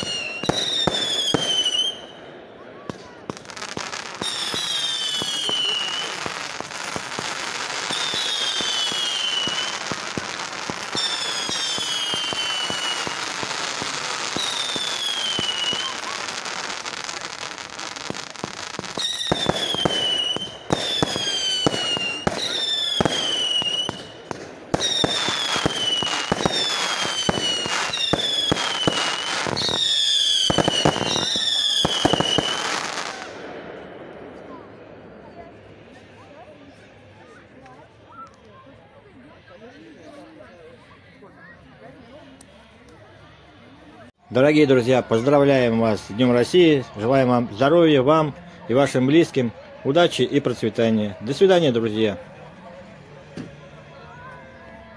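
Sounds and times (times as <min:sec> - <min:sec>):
fireworks bangs: 0:00.0 - 0:36.4
fireworks crackling: 0:00.0 - 0:38.7
whistling fireworks: 0:00.0 - 0:44.1.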